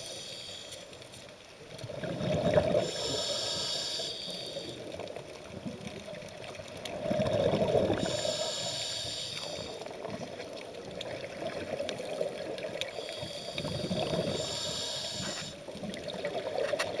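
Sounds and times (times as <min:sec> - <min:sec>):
regulator inhalation hiss: 0:00.0 - 0:01.0, 0:02.8 - 0:05.0, 0:07.9 - 0:09.9, 0:12.9 - 0:15.6
exhaled bubbles rumbling: 0:01.8 - 0:03.0, 0:05.2 - 0:08.2.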